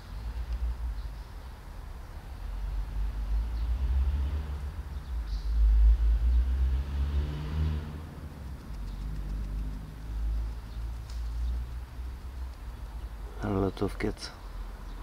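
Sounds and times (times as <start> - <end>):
car driving past: 2.8 - 11.7.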